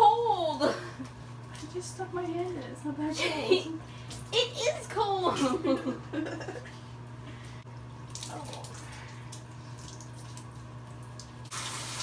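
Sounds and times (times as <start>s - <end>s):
low steady hum: 0.0s - 11.9s
water pouring and splashing in tub: 8.0s - 12.0s.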